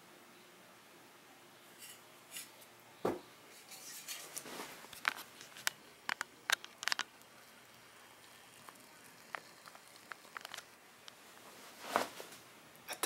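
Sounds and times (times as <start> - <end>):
rustling: 3.5 - 5.7, 9.2 - 12.5.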